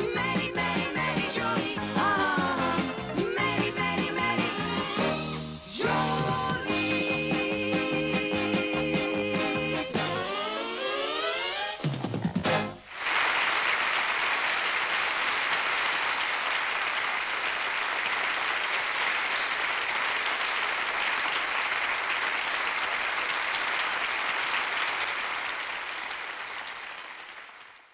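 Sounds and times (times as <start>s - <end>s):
audience applauding: 12.2s - 27.9s.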